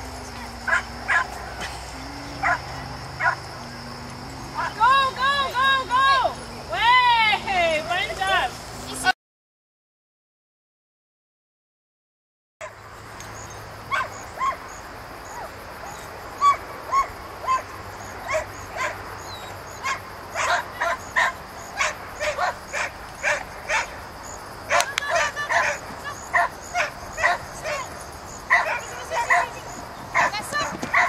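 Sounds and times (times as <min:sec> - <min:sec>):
dog barking: 0:00.6 - 0:01.7, 0:02.3 - 0:03.4, 0:13.9 - 0:14.6, 0:15.3 - 0:24.0, 0:24.7 - 0:31.0.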